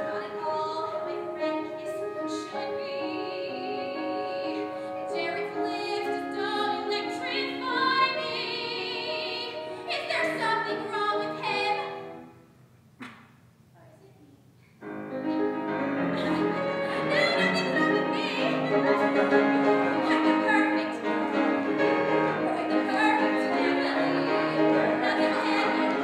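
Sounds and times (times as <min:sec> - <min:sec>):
operatic singing with accompaniment: 0:16.1 - 0:26.0.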